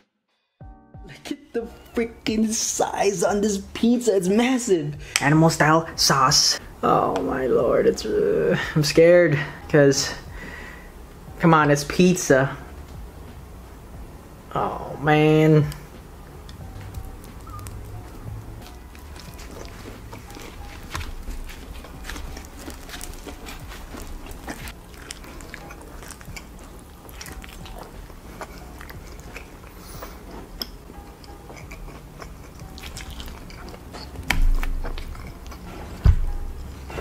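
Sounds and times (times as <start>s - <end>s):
soft background music: 0.1s - 37.0s
wet chewing and biting: 16.4s - 37.0s.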